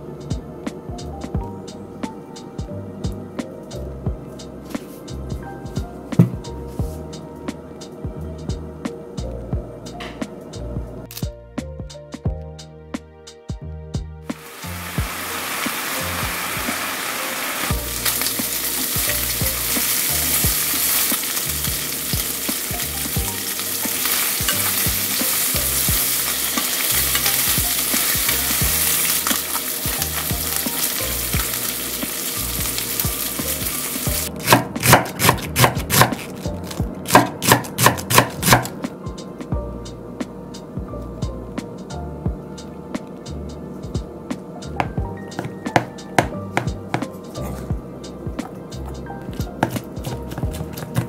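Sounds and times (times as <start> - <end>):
food sizzling in frying pan: 14.3 - 34.3
knife chopping on cutting board: 34.4 - 36.3, 37.1 - 38.8, 44.8 - 47.6, 49.4 - 51.0.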